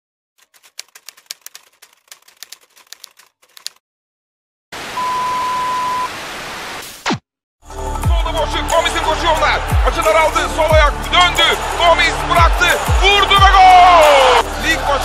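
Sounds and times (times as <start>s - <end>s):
typewriter keys clacking: 0.4s - 3.8s
static hiss: 4.8s - 6.9s
steady beep: 5.0s - 6.1s.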